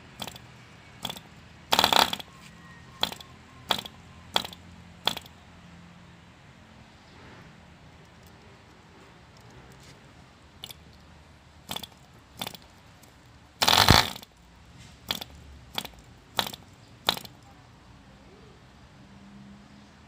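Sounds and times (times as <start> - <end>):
propeller flicking clicks: 0.1 - 2.3, 3.0 - 5.3, 10.6 - 14.4, 15.1 - 17.5
model engine firing briefly: 1.0 - 2.3, 3.0 - 5.3, 13.6 - 14.3, 15.1 - 17.4.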